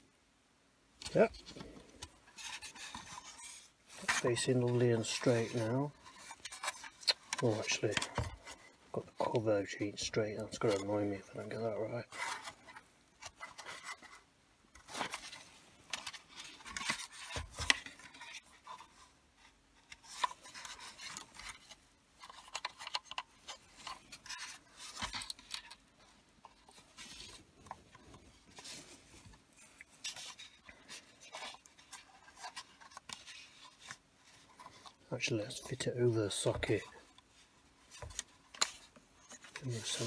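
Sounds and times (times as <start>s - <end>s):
plastic parts clicking and knocking: 19.9s - 28.2s.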